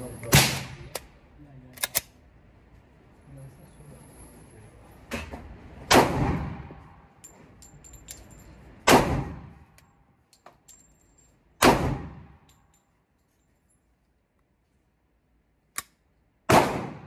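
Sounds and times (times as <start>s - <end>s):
pistol shots ringing out: 5.9s - 6.6s, 8.8s - 9.5s, 11.6s - 12.4s, 16.5s - 17.0s
light metallic clinks: 7.2s - 8.8s, 9.8s - 11.5s, 12.4s - 14.2s.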